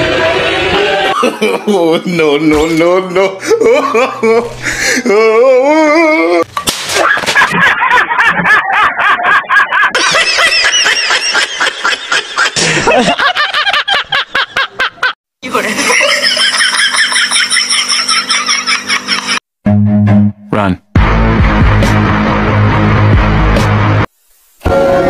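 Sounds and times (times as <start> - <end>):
rapid high-pitched laughing: 15.7 - 19.4.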